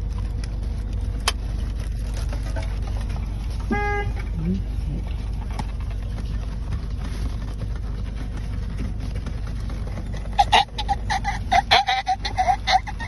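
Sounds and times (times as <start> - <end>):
low rumble inside a car: 0.0 - 13.0
man's rhythmic strained cries: 10.3 - 13.0.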